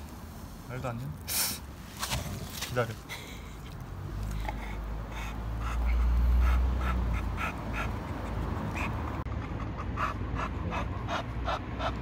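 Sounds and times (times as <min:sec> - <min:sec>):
dog panting: 0:04.3 - 0:12.0.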